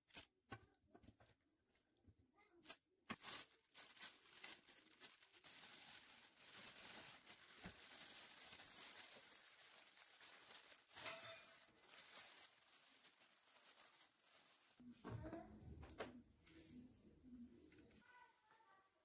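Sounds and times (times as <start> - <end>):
plastic bag rustling and crinkling: 2.7 - 14.9.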